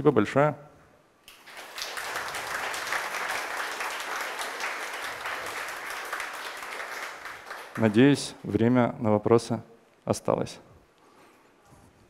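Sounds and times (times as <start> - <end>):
audience applauding: 1.3 - 8.4.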